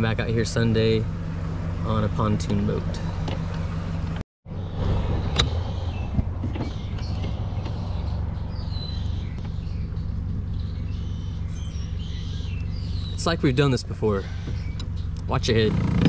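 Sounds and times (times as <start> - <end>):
outboard motor idling: 4.9 - 16.0.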